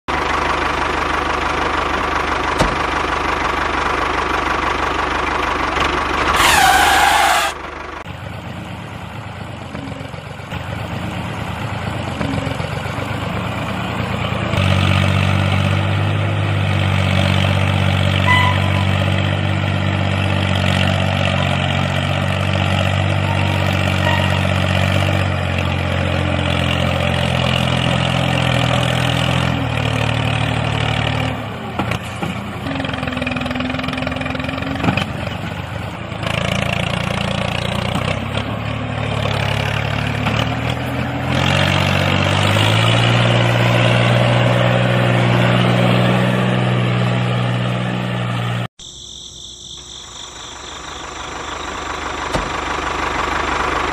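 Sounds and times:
tractor engine running: 0.0 - 53.9
brief sweeping tone: 18.2 - 19.3, 23.2 - 24.8.

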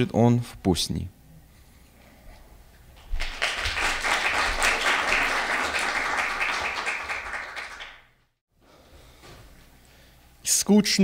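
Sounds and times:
audience applauding: 3.0 - 8.2.

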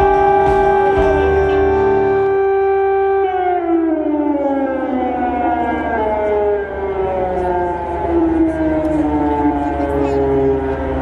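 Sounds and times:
air-raid siren wailing: 0.0 - 11.0.

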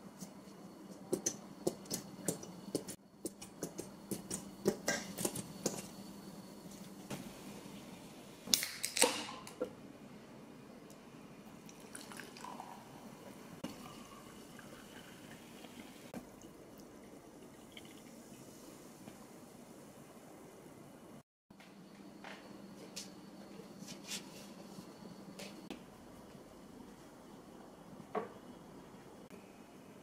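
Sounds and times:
soda pouring and fizzing: 11.6 - 19.0.

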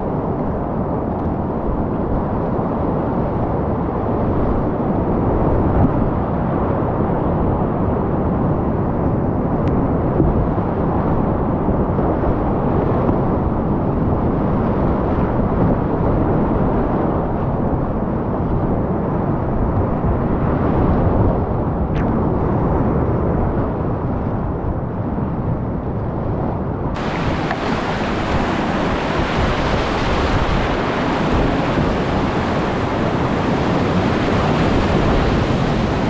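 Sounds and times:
whitewater rapids rushing: 27.0 - 36.0.

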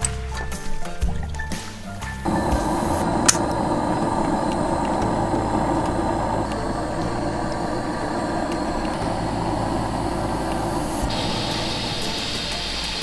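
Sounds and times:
gas burner rushing: 2.2 - 13.0.

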